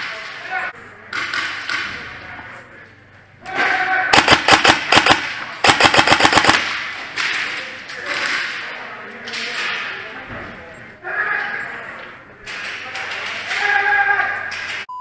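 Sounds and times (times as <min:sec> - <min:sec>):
airsoft gun full-auto bursts: 0:04.1 - 0:06.8.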